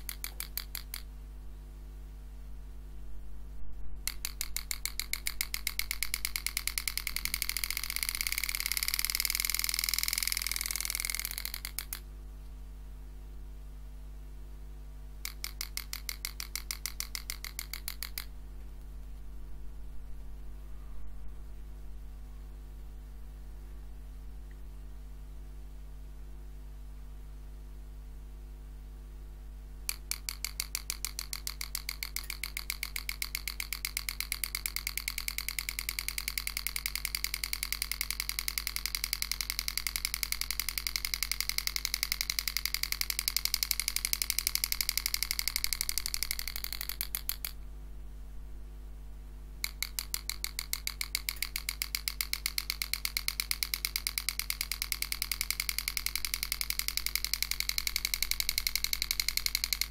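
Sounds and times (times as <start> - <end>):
engraving tool tapping on steel: 0.0 - 1.1, 4.0 - 12.0, 15.2 - 18.3, 29.9 - 47.6, 49.6 - 59.9
steady low hum: 0.0 - 59.9.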